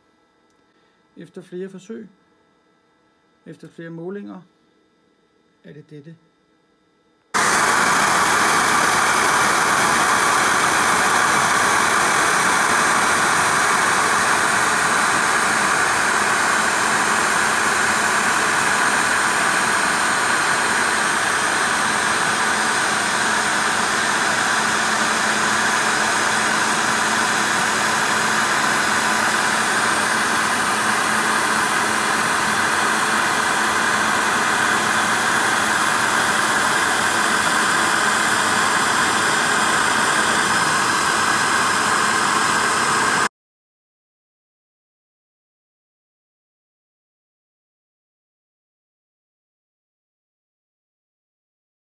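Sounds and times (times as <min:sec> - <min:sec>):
milling machine spindle whirring: 0:07.4 - 0:43.3.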